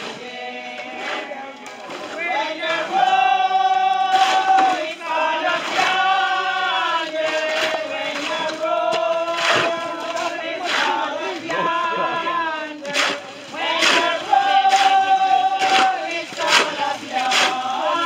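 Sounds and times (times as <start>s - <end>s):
group singing a hymn: 0.0s - 18.0s.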